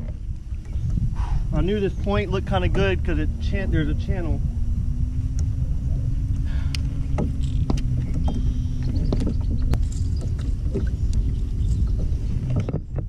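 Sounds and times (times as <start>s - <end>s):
steady low hum: 0.0s - 13.0s
wind rumbling on microphone: 0.0s - 13.0s
sharp clicks and knocks: 6.7s - 11.2s.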